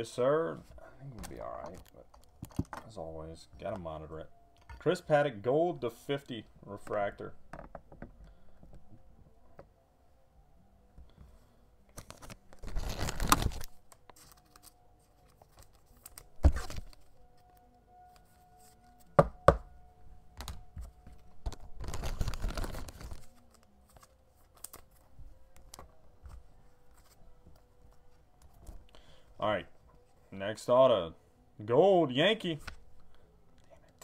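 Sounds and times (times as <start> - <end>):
wrapper tearing and crinkling: 12.0 - 14.8, 21.5 - 23.6.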